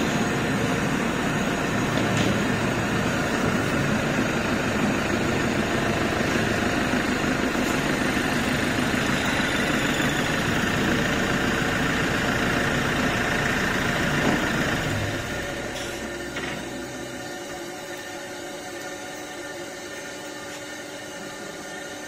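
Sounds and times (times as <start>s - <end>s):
lathe running: 0.0s - 22.0s.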